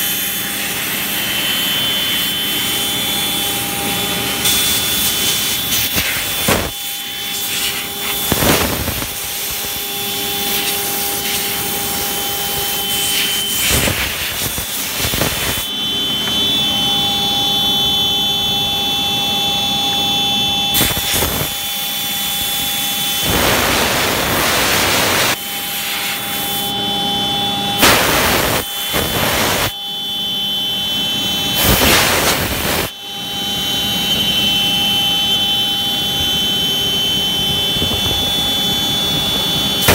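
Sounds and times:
router spindle high whine: 0:00.0 - 0:39.9.

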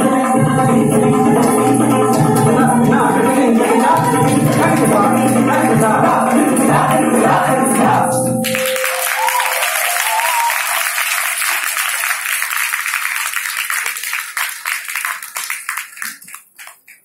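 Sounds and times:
dance music: 0:00.0 - 0:10.5
audience applause: 0:08.4 - 0:17.0.

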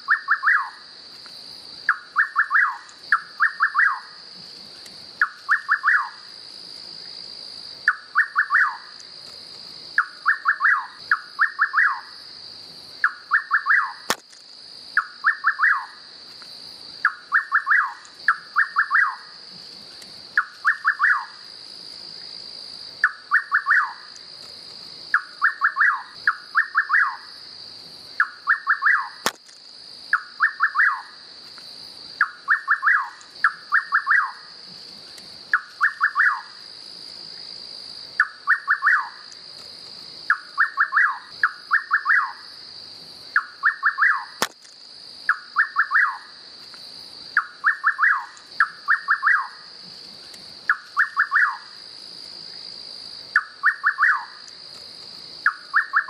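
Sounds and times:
nightjar singing: 0:00.0 - 0:00.9, 0:01.8 - 0:04.2, 0:05.2 - 0:06.3, 0:07.8 - 0:09.0, 0:09.9 - 0:12.3, 0:13.0 - 0:14.1, 0:14.9 - 0:16.0, 0:17.0 - 0:19.4, 0:20.3 - 0:21.5, 0:22.9 - 0:24.2, 0:25.1 - 0:27.4, 0:28.1 - 0:29.3, 0:30.1 - 0:31.2, 0:32.1 - 0:34.5, 0:35.5 - 0:36.7, 0:38.1 - 0:39.4, 0:40.2 - 0:42.6, 0:43.3 - 0:44.5, 0:45.2 - 0:46.4, 0:47.3 - 0:49.7, 0:50.6 - 0:51.8, 0:53.3 - 0:54.5, 0:55.4 - 0:56.0.

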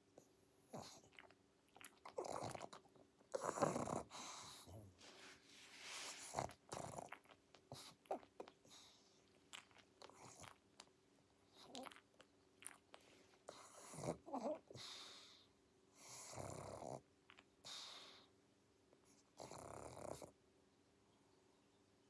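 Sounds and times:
dog snoring and snorting: 0:00.7 - 0:04.9, 0:06.1 - 0:10.6, 0:11.5 - 0:12.0, 0:13.4 - 0:15.4, 0:16.0 - 0:18.3, 0:19.1 - 0:20.4
dog mouth clicks and smacks: 0:09.5 - 0:11.0.

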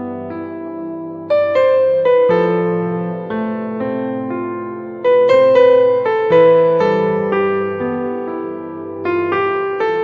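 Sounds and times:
keyboard chords: 0:00.0 - 0:10.0.

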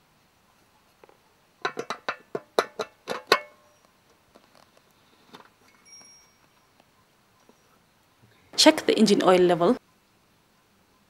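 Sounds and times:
metal cap screwing clicks: 0:01.6 - 0:03.6.

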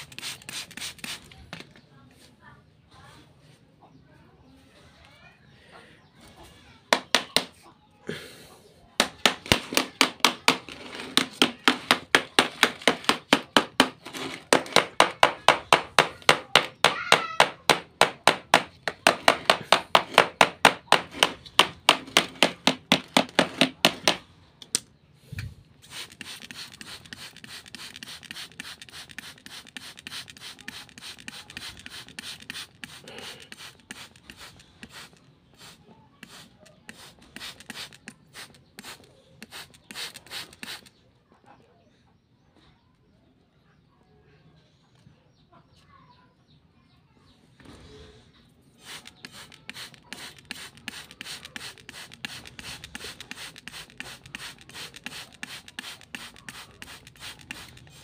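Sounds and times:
spray bottle squeezes: 0:00.0 - 0:01.7, 0:25.8 - 0:40.9, 0:48.8 - 0:58.0.

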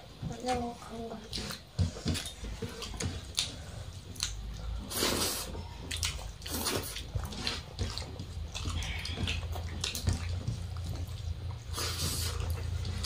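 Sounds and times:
wet chewing and smacking: 0:00.2 - 0:13.0.

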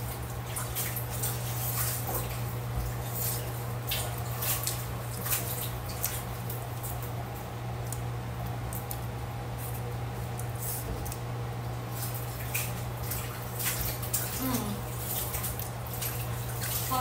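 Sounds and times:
steady low hum: 0:00.0 - 0:17.0
wet chewing: 0:07.8 - 0:11.3.

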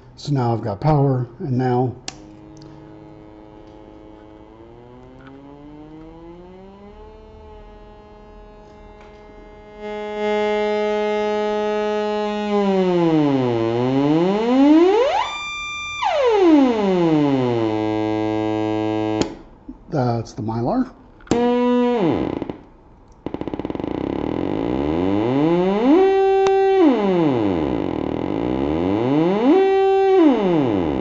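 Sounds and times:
oscillator drone sweeping pitch: 0:02.3 - 0:19.2.

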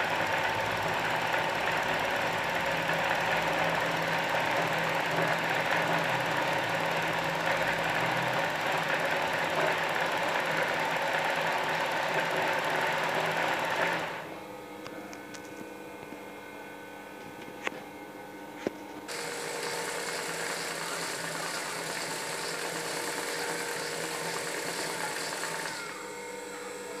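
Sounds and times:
embroidery machine stitching: 0:00.0 - 0:14.3, 0:19.1 - 0:26.1
sharp machine clicks: 0:00.1 - 0:14.2, 0:19.1 - 0:26.0.

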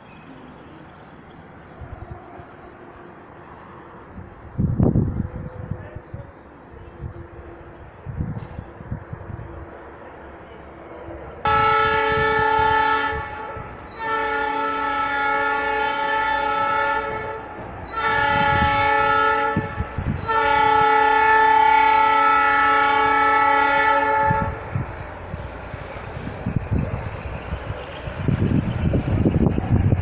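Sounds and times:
train horn blasts: 0:11.4 - 0:24.9.

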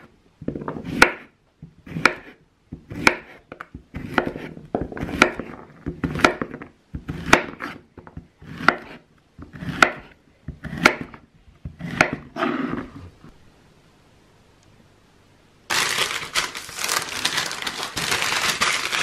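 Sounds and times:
knife slicing courgette: 0:00.8 - 0:06.4, 0:07.0 - 0:07.8, 0:08.4 - 0:12.9.

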